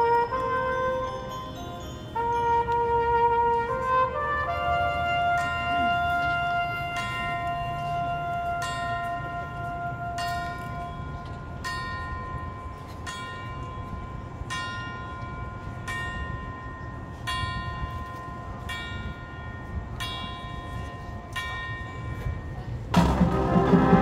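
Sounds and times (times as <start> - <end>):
bell tolling slowly: 5.3 - 24.0
marching band playing: 22.9 - 24.0.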